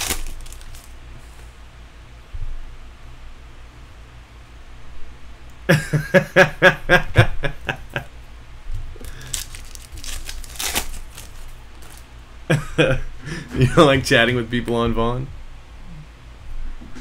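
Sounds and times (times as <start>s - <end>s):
foil wrapper crinkling and tearing: 0.0s - 1.0s, 9.0s - 12.1s
man laughing: 5.6s - 8.1s, 12.5s - 14.2s.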